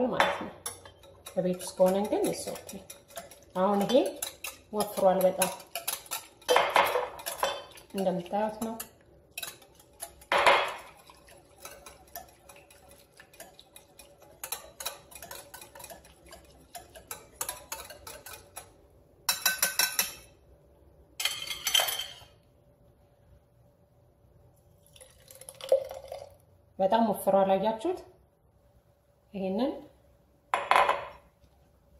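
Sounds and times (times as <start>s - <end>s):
whisk clicking against glass bowl: 0.6s - 20.3s.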